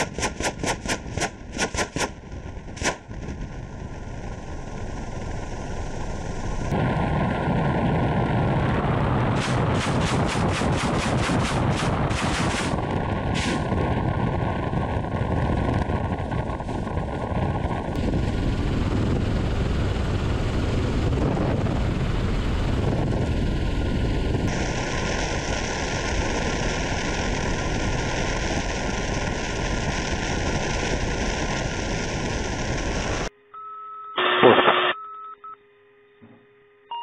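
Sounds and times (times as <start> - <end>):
helicopter rotor and wind rush: 0.0 - 33.3
loud electronic tone: 33.4 - 35.6.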